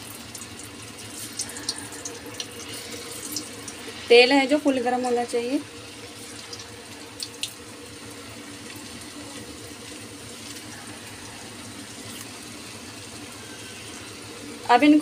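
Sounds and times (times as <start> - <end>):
potatoes deep-frying in hot oil: 0.0 - 15.0.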